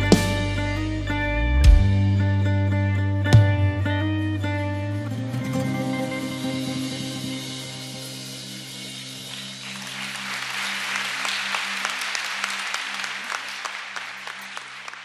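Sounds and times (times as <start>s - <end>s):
band holding low chord: 0.0s - 9.4s
audience applauding: 9.2s - 15.0s.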